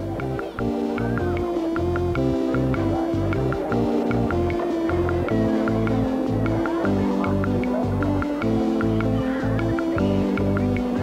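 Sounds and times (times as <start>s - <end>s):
background music with steady beat: 0.0s - 11.0s.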